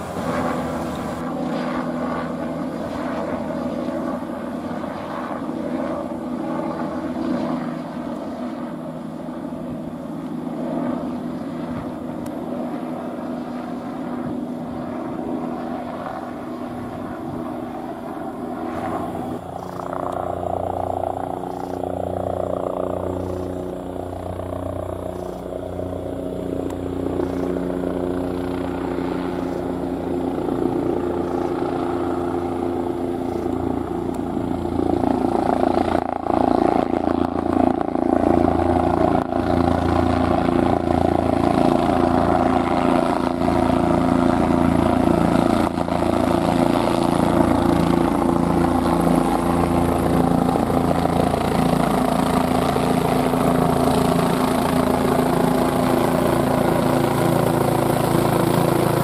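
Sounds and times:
helicopter in flight: 0.0 - 59.0.

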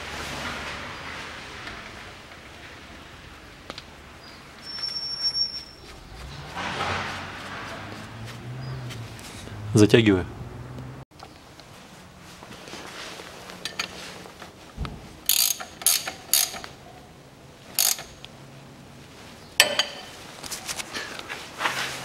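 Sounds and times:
ratchet wrench clicking: 15.3 - 16.7, 17.7 - 18.2.

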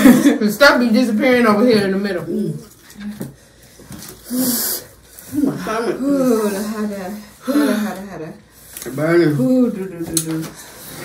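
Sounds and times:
person hissing a breath: 4.2 - 7.9
person grunting: 5.3 - 8.0.

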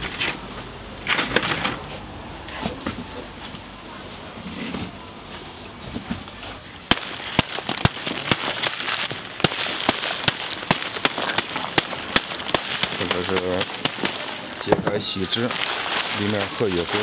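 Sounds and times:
dry clay crumbling: 6.8 - 17.0
foil and paper crinkling: 6.9 - 17.0.

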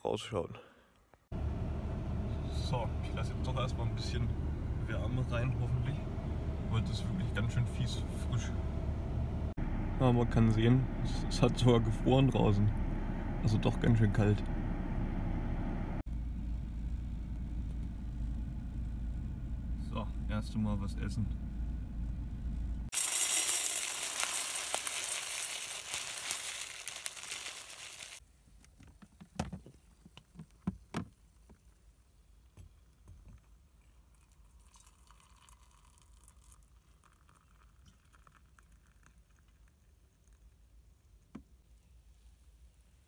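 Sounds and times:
electric kettle hissing: 22.9 - 28.2.

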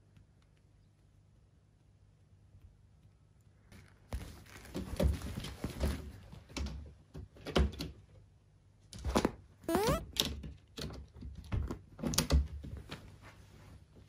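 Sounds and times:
fabric rustling: 3.7 - 6.4.

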